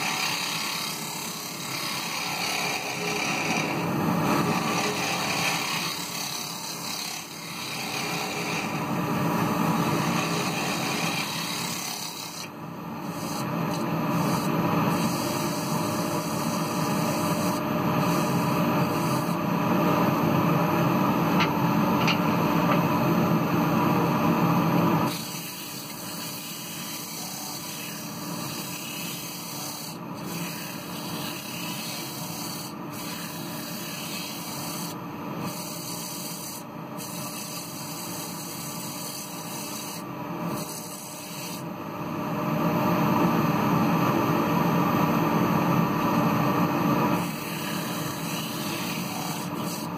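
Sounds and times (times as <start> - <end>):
lathe running hum: 0.0 - 49.9
sandpaper rubbing on spinning wood: 9.9 - 19.4, 25.1 - 41.6, 47.2 - 49.9.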